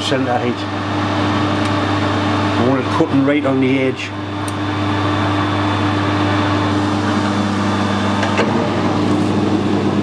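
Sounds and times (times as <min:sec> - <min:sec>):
metal lathe motor and gearing hum: 0:00.0 - 0:10.0.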